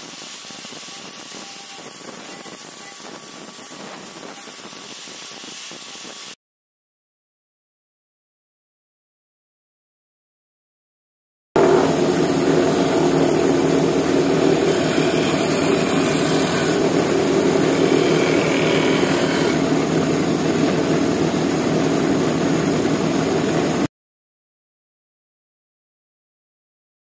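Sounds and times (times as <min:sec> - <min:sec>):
sanding hiss on wood: 0:00.0 - 0:06.4, 0:11.6 - 0:20.7
disc sander hum: 0:11.6 - 0:23.9.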